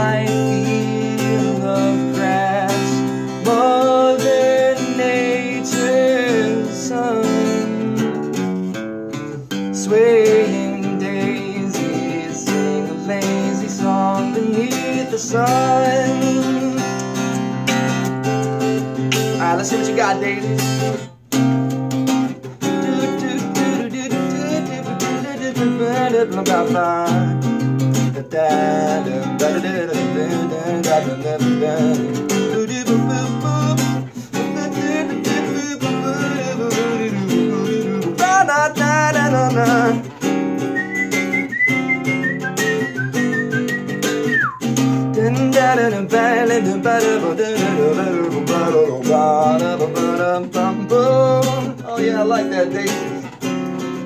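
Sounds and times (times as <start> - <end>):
wordless vocal melody: 0.0 - 8.2, 9.7 - 18.2, 22.3 - 54.0
acoustic guitar: 0.0 - 54.0
high whistled note: 40.6 - 44.8.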